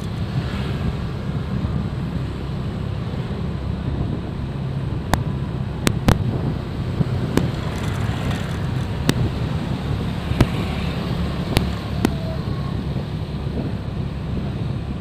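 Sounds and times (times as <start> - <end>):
motorcycle engine: 0.0 - 12.3
road noise: 0.0 - 15.0
wind buffeting microphone: 0.0 - 15.0
sharp cracks: 7.3 - 9.3.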